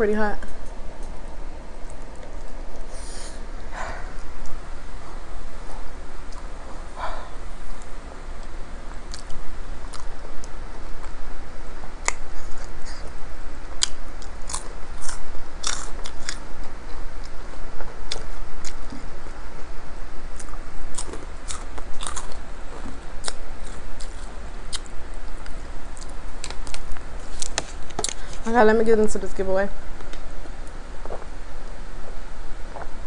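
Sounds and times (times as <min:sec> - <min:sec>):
chewing with crisp crunches: 0:05.6 - 0:11.2, 0:13.8 - 0:19.7, 0:20.3 - 0:28.4.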